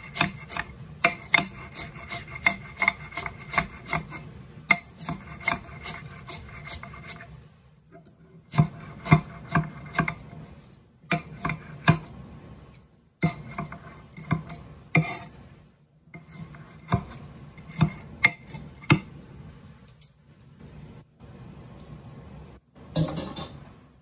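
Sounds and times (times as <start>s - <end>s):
knife chopping on marble board: 0.0s - 7.2s, 8.5s - 10.2s, 11.1s - 12.1s, 13.2s - 15.2s, 16.2s - 19.1s.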